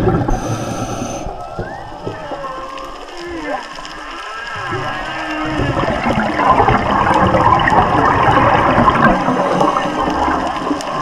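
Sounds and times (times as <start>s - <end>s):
faint whale song: 0.0s - 11.0s
air bubbling underwater: 5.5s - 11.0s.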